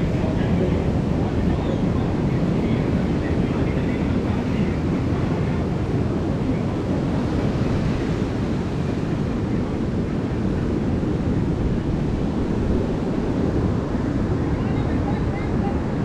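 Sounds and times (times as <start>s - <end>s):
ocean surf rushing: 0.0s - 16.0s
wind buffeting microphone: 0.0s - 16.0s.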